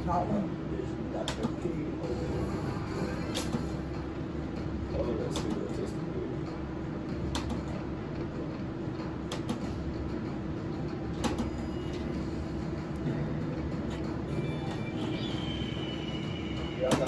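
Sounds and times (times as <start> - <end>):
room hum: 0.0 - 17.0.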